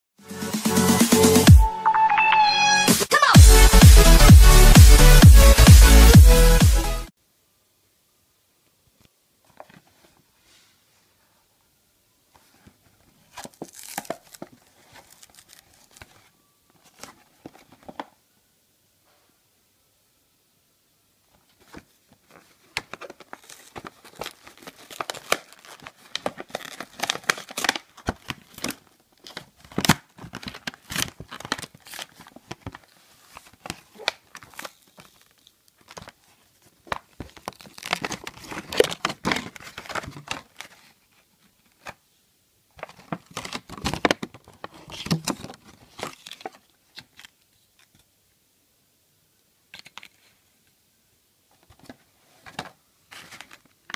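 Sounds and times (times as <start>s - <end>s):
plastic packaging crinkling and tearing: 13.3s - 17.9s, 21.7s - 41.1s, 42.8s - 48.0s.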